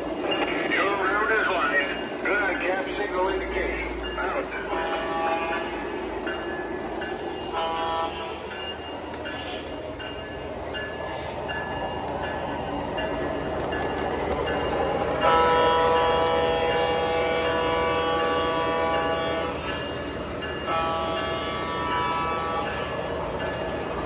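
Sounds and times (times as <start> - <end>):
model train wheels rumbling: 0.0 - 24.0
train horn: 4.6 - 5.7, 7.5 - 8.5, 15.2 - 19.7, 20.7 - 22.9.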